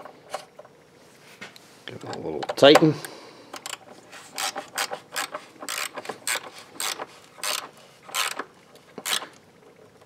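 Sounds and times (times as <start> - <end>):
hand ratchet clicking: 3.6 - 9.4.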